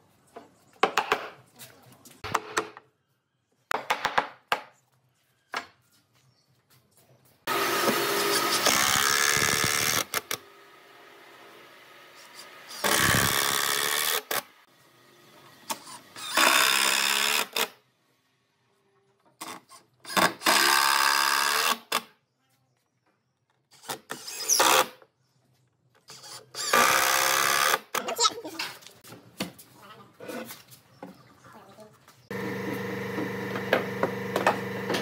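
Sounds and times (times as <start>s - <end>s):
cordless drill boring into wood: 7.5s - 10.4s, 12.2s - 14.4s, 15.7s - 17.7s, 20.1s - 22.0s, 23.8s - 24.9s, 26.1s - 28.0s
power tool on wood: 7.5s - 17.7s, 26.1s - 28.0s, 32.3s - 35.0s.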